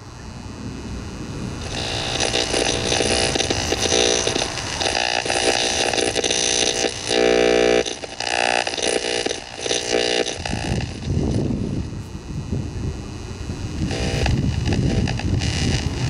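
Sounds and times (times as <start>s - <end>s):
radio tuning static and whine: 0.0s - 16.0s
steady radio buzz: 0.0s - 16.0s.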